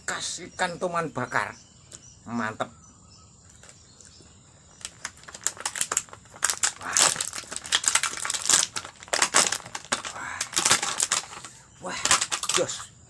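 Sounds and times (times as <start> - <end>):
crackly crunching chewing: 3.4 - 12.8.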